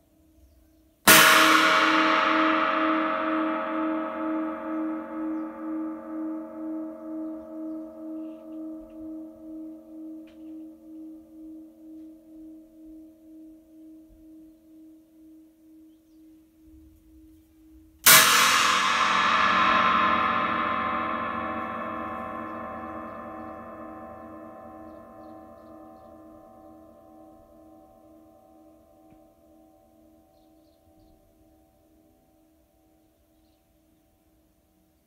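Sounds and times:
cymbal ringing with pulsing hum: 1.1s - 31.5s
china cymbal crash: 18.0s - 26.3s.

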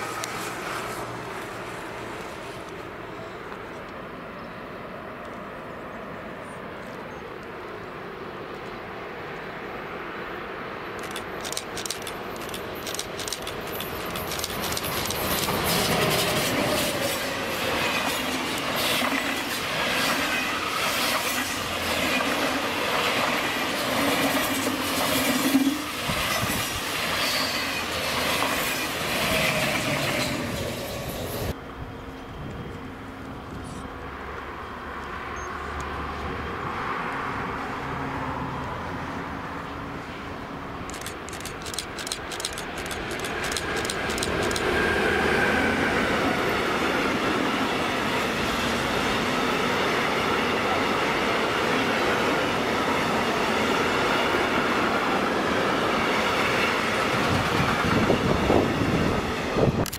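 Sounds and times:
train passing at speed: 0.0s - 59.9s
wheels clicking over rails: 11.0s - 17.1s, 40.9s - 44.8s.

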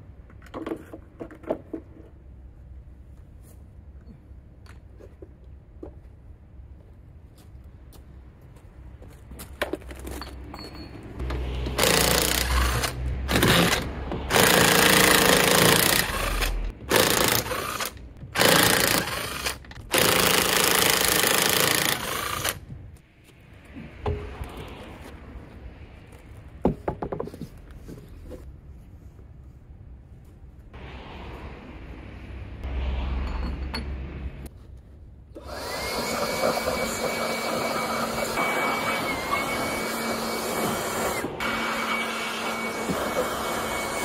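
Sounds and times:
impact wrench on wheel nuts: 11.2s - 22.6s.

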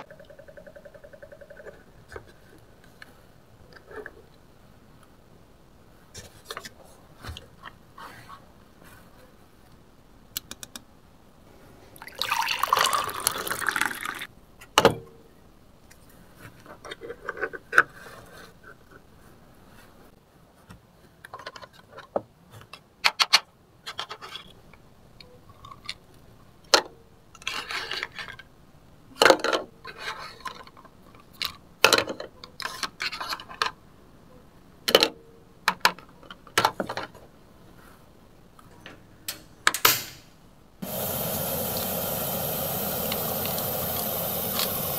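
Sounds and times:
water pouring into toy pot: 12.0s - 14.3s, 40.8s - 44.9s.

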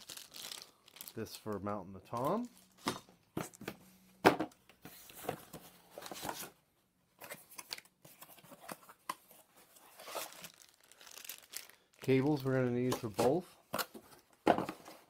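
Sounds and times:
plastic packaging rustling: 0.0s - 2.8s, 9.6s - 13.1s.

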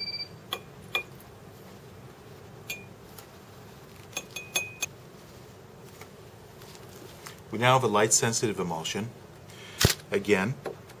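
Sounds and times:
glassware clinking: 2.7s - 2.9s, 4.2s - 4.9s.

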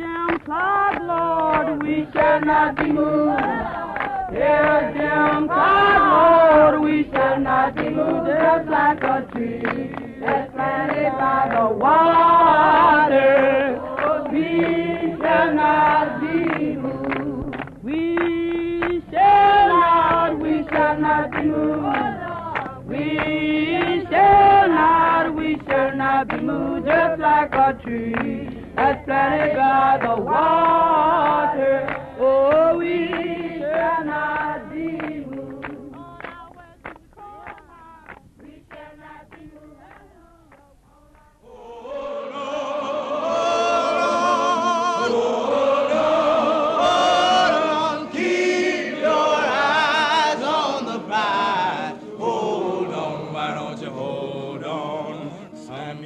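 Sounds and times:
choir singing: 0.1s - 56.0s.

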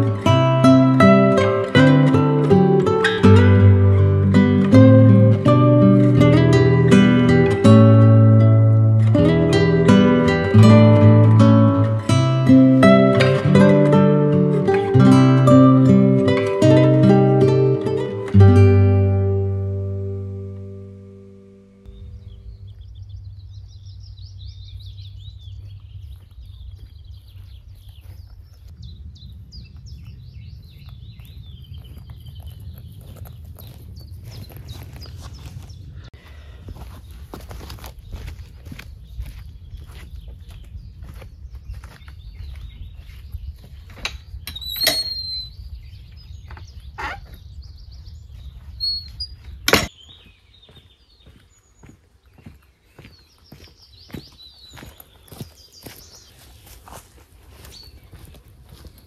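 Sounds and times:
steady low rumble: 18.6s - 36.2s
birds chirping and trilling: 21.8s - 36.1s, 36.7s - 59.0s
footsteps on grass: 21.8s - 44.4s, 46.1s - 59.0s
wind rumble on microphone: 21.9s - 51.4s
gate squeak: 44.5s - 45.5s, 48.8s - 49.1s, 49.7s - 49.9s
gate latch and timbers knocking: 49.7s - 49.9s.

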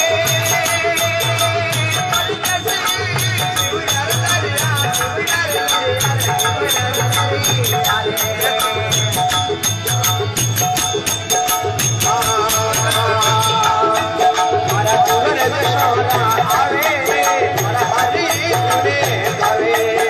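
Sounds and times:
person singing folk song: 0.0s - 9.3s, 12.0s - 20.0s
repeating drumbeat: 0.0s - 20.0s.

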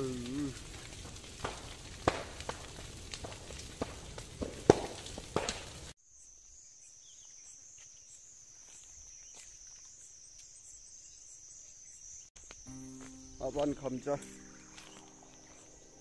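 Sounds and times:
burning brush crackling and popping: 0.0s - 6.0s, 12.4s - 16.0s
pulsing high-pitched insect drone: 12.6s - 16.0s.

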